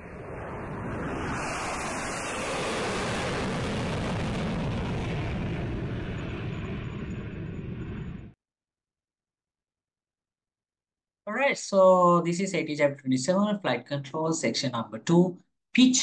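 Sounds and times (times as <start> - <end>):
jet airplane flying by: 0.0 - 8.4.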